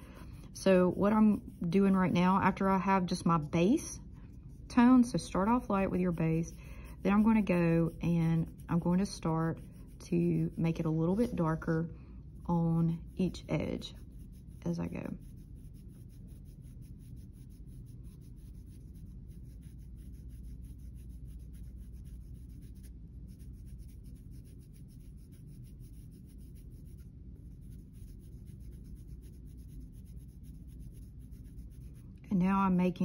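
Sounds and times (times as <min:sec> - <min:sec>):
pencil scratching on paper: 0:00.1 - 0:03.4, 0:04.5 - 0:11.8, 0:12.4 - 0:32.0.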